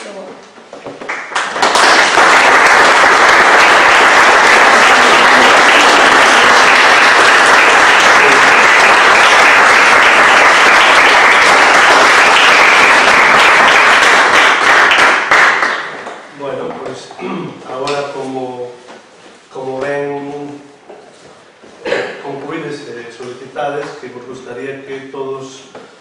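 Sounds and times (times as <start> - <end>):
crowd applause: 1.1 - 16.3.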